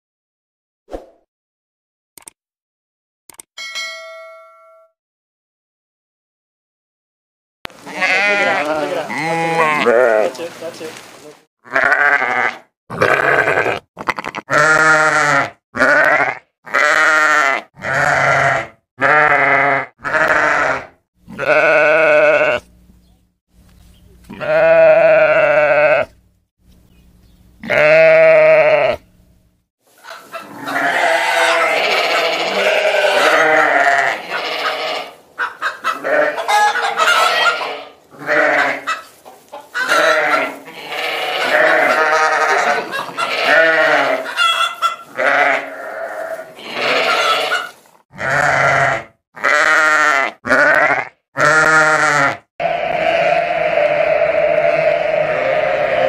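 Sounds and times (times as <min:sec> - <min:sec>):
sheep bleating: 0:07.7 - 0:10.5, 0:11.6 - 0:22.7, 0:24.3 - 0:26.2, 0:27.6 - 0:29.0, 0:30.2 - 0:35.2, 0:35.8 - 0:39.1, 0:39.8 - 0:56.0.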